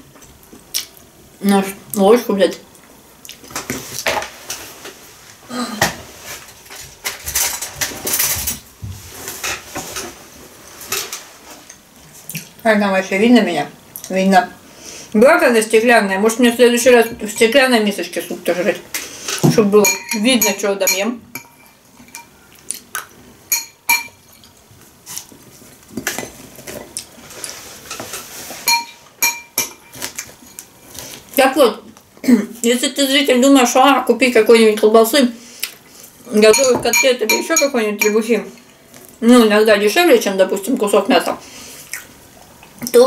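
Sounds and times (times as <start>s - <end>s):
utensils and crockery clinking: 6.7s - 8.7s, 19.2s - 22.4s, 23.5s - 24.5s, 28.0s - 30.9s, 36.3s - 38.4s.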